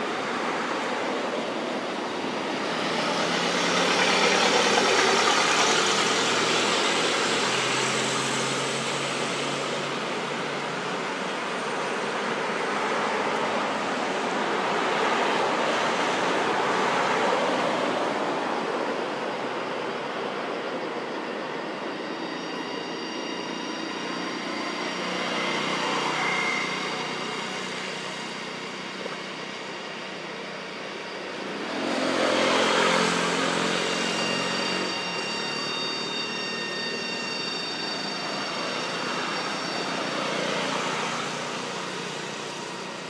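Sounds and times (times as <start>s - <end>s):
traffic passing on a road: 0.0s - 21.3s, 22.2s - 43.0s.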